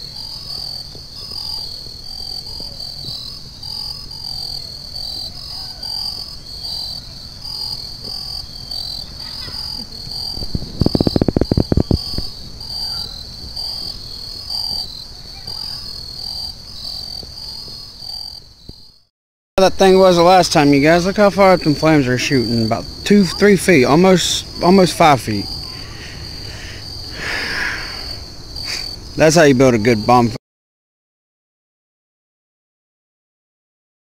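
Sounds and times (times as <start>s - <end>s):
crickets chirping: 0.0s - 30.4s
loud crackling clicks: 10.4s - 12.3s
lower repeating call: 22.1s - 28.9s.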